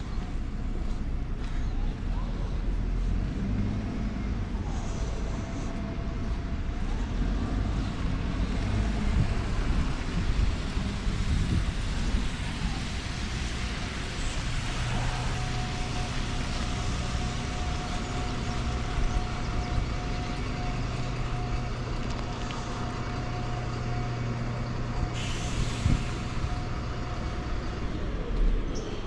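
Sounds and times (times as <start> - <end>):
large vehicle engine humming: 0.0 - 29.0
air hiss: 25.2 - 26.4.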